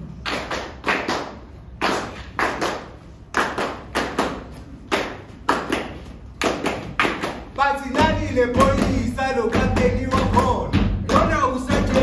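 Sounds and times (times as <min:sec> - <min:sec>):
body percussion hits: 0:03.5 - 0:12.0.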